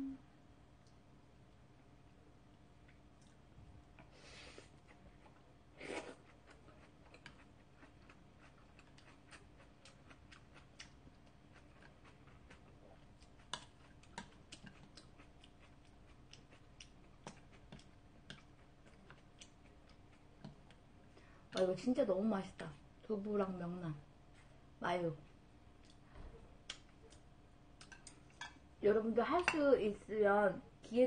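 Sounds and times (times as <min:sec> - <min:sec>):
chewing: 0:02.8 - 0:20.8, 0:25.8 - 0:28.6.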